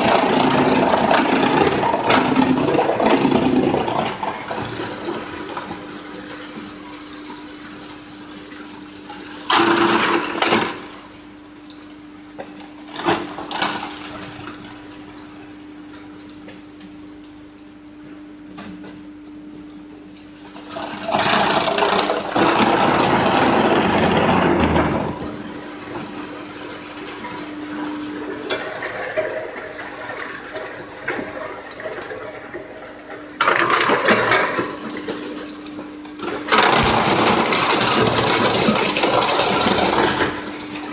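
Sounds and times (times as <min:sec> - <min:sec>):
chipper rushing noise: 0:00.0 - 0:08.6, 0:20.6 - 0:40.9
wood chipper humming: 0:00.0 - 0:40.9.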